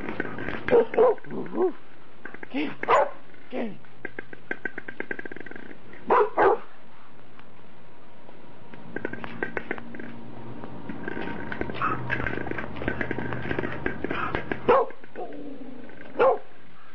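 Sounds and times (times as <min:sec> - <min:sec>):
dog barking: 0:00.7 - 0:01.7, 0:02.9 - 0:03.2, 0:06.1 - 0:06.7, 0:14.6 - 0:15.0, 0:16.2 - 0:16.5.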